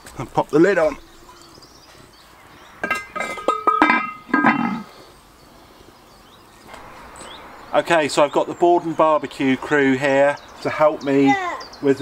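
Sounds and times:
metal lid clanking on pot: 2.8 - 4.8.

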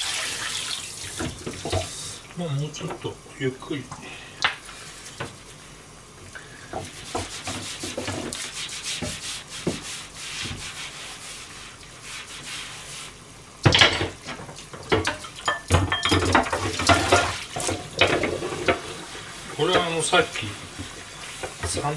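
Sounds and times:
sponge scrubbing wooden board: 6.9 - 13.2, 18.3 - 21.9.

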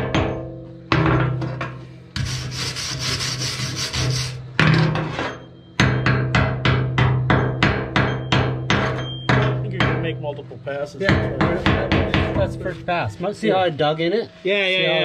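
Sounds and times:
wire brush scrubbing steel: 2.2 - 4.5.

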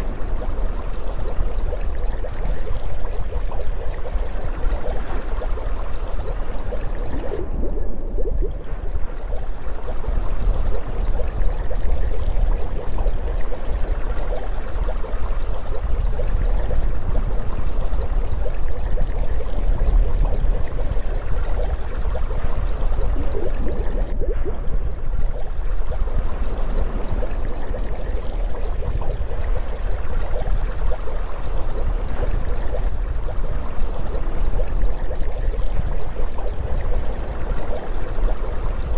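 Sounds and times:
rush of moving water underwater: 0.0 - 38.9
deep rumble: 6.8 - 10.2.

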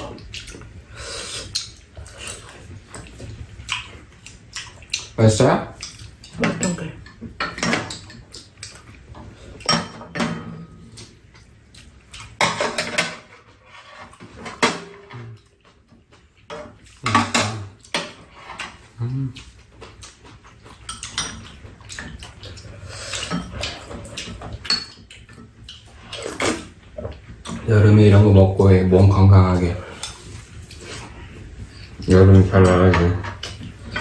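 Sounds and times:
mouth sounds of eating: 18.8 - 24.4.

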